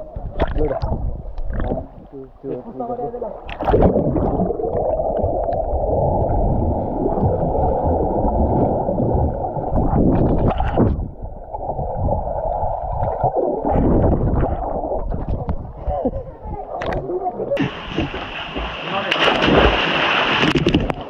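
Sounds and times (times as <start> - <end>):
air bubbles gurgling: 0.0 - 2.2, 3.3 - 16.1
water splashing: 0.0 - 15.9, 16.6 - 21.0
muffled underwater churning water: 0.0 - 21.0.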